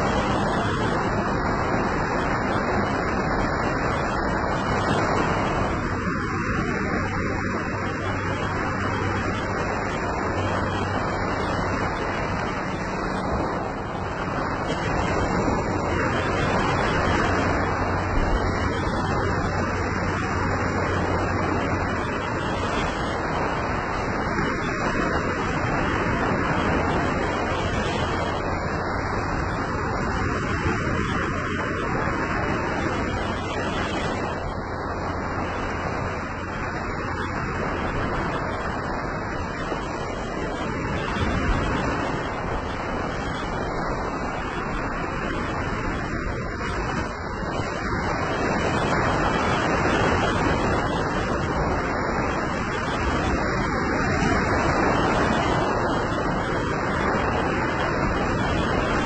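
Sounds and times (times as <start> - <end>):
small waves breaking on beach: 0.0 - 59.0.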